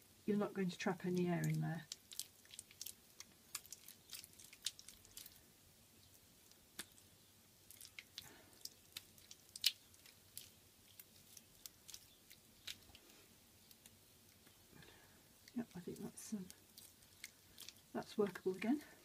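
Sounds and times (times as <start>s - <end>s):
wet clay squelching in hands: 1.0s - 14.7s, 15.3s - 18.8s.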